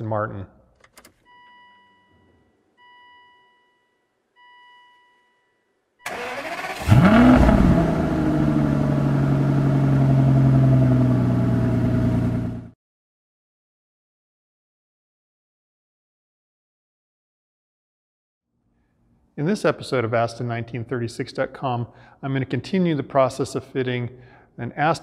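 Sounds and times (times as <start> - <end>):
car engine revving and idling: 6.1 - 12.7.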